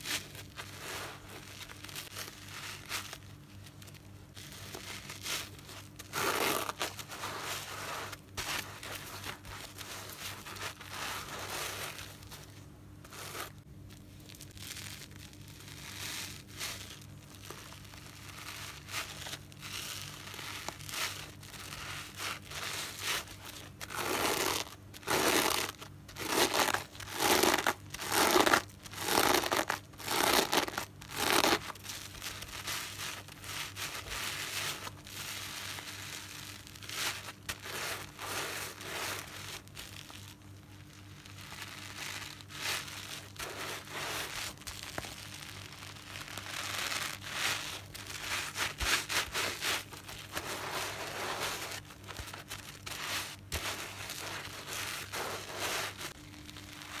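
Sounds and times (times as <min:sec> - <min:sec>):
wet sponge squelching: 0:04.4 - 0:13.6, 0:14.2 - 0:40.3, 0:40.9 - 0:57.0.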